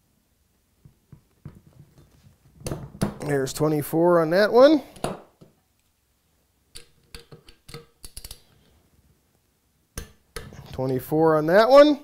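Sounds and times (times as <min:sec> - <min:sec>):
man talking: 0:03.2 - 0:05.0, 0:10.6 - 0:12.0.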